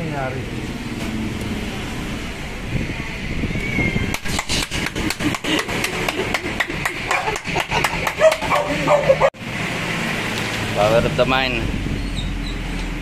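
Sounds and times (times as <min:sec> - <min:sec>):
rapid hand claps: 0:04.1 - 0:08.7.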